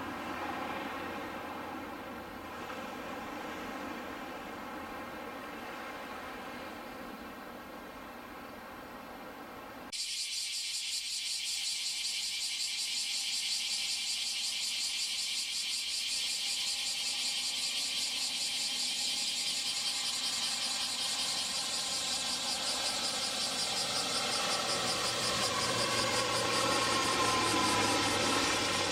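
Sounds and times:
propeller aircraft whine: 0.0 - 4.6, 16.6 - 28.9
deep engine drone: 19.8 - 28.9.

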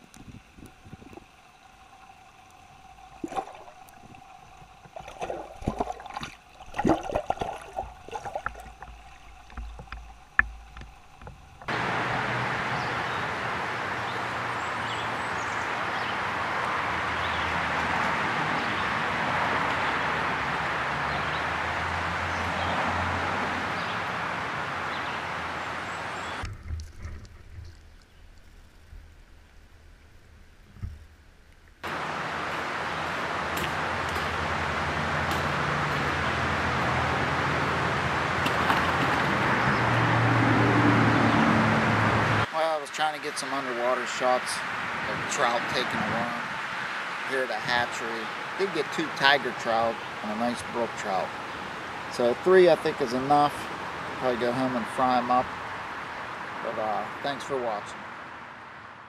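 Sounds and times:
water sloshing: 0.0 - 11.7, 30.7 - 40.3.

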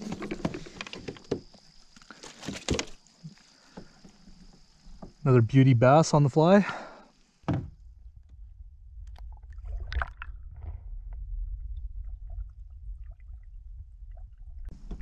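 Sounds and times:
muffled underwater rumble: 7.8 - 15.0.

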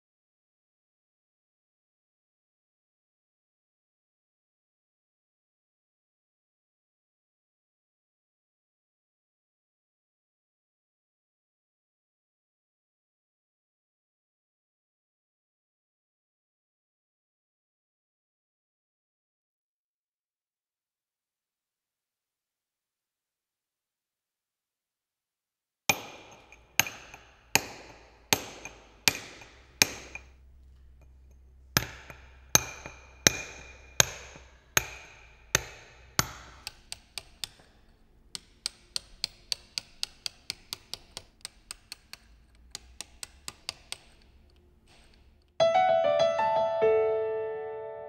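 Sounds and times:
hammer striking chisel on stone: 25.9 - 45.6.

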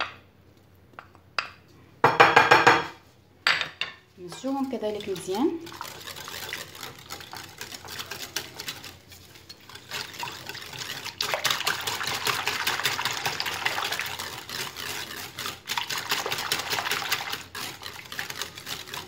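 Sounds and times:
whisk beating batter in bowl: 4.2 - 19.0.

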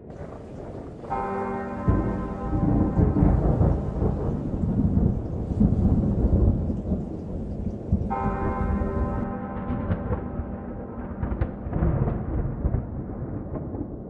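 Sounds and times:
deep bell struck: 0.0 - 7.0, 8.1 - 12.8
rain hiss: 0.0 - 9.4
rolling thunder: 0.0 - 14.0.

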